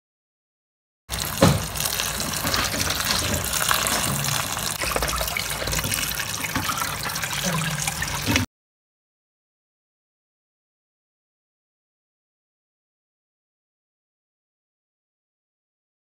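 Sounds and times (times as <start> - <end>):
tap water running onto berries: 1.1 - 8.5.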